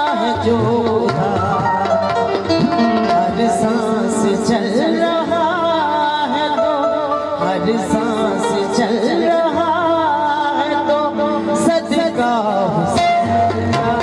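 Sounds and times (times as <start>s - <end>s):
hand drums: 0.0s - 5.1s, 12.6s - 14.0s.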